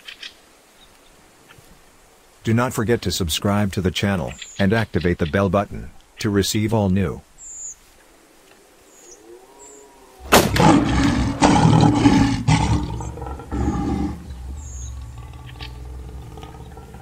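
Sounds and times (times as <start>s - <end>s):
lion growling and roaring: 9.2s - 17.0s.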